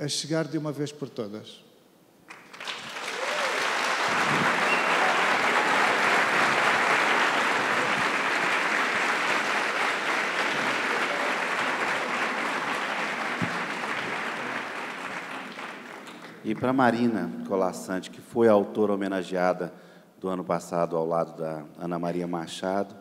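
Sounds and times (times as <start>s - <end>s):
audience applauding: 2.3s - 16.5s.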